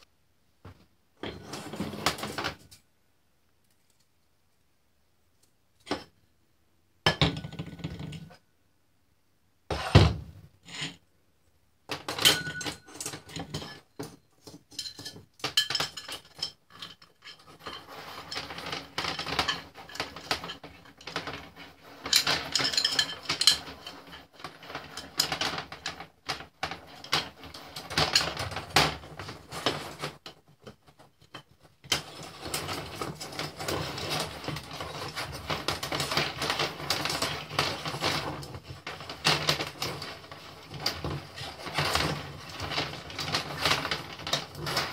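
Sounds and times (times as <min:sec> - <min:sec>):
metal spring coils clinking and rattling: 0:14.7 - 0:26.0.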